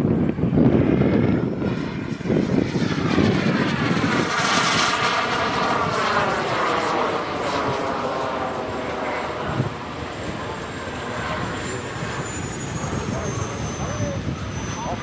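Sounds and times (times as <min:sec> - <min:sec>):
jet engine flying past: 0:00.0 - 0:15.0.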